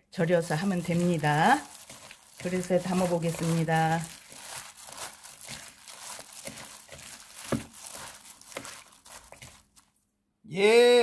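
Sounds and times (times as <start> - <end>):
wet rustle of vegetables: 0.0 - 10.0
plastic gloves crinkling: 0.0 - 10.1.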